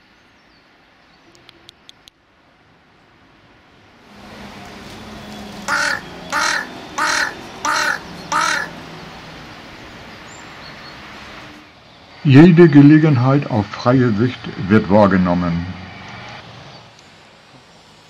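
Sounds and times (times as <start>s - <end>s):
crow cawing: 5.6s - 8.8s.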